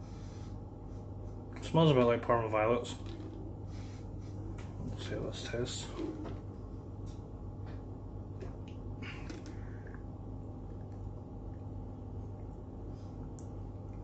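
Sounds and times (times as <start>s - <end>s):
low room hum: 0.0s - 14.0s
man gulping: 8.4s - 11.8s.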